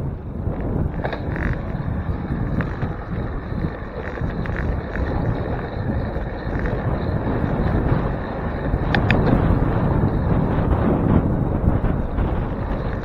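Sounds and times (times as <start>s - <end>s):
wind buffeting microphone: 0.0s - 13.0s
faint clicks: 8.9s - 9.4s.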